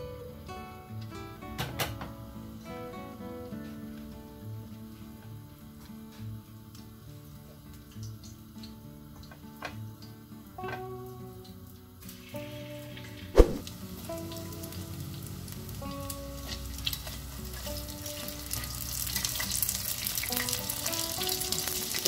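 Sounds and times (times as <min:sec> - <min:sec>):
bread frying in hot oil: 0:00.0 - 0:22.0
soft background music: 0:00.0 - 0:22.0
sharp knock: 0:13.4 - 0:13.6.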